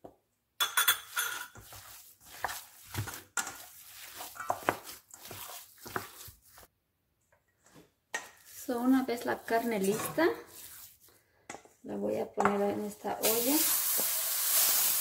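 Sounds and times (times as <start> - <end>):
ground beef squishing and slapping: 1.6 - 6.7, 8.2 - 11.6.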